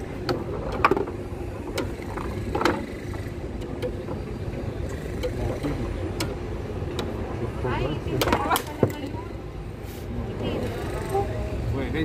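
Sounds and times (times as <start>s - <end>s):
foosball ball and players clacking: 0.0s - 7.2s, 8.1s - 9.3s.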